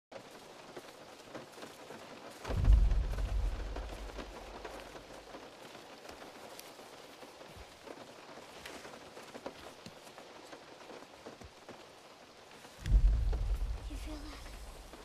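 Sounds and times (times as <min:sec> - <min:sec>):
rain pattering on a car roof: 0:00.1 - 0:15.0
deep heavy footstep boom: 0:02.5 - 0:04.9, 0:12.8 - 0:13.9.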